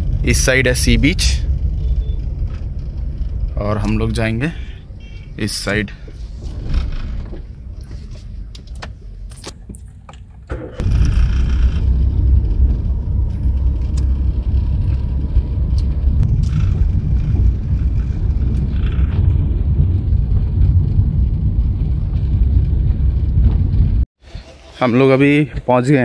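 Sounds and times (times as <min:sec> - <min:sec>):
car engine and road noise: 0:00.0 - 0:25.1.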